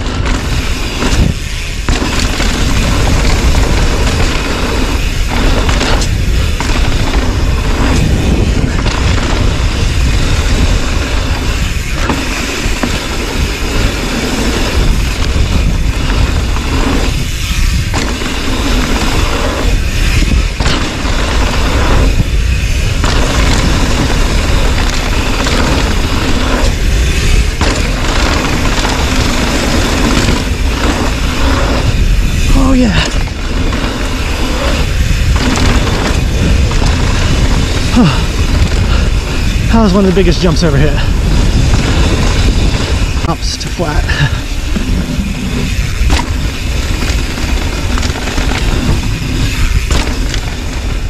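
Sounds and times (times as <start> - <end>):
bike tyres rolling over dirt: 0.0 - 51.0
wind buffeting microphone: 0.0 - 51.0.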